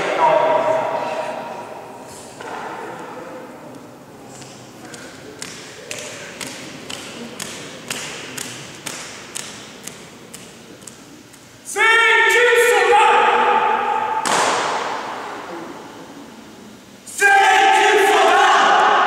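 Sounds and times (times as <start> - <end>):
long shouted call: 11.7 - 14.2.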